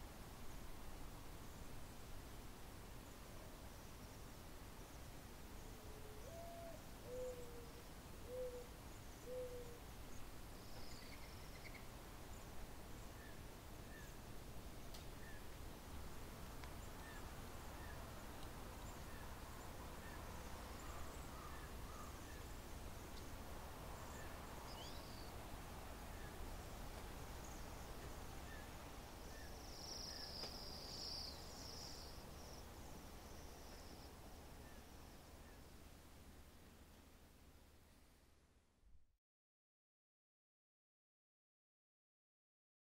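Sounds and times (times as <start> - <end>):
bird cooing: 5.9 - 9.8.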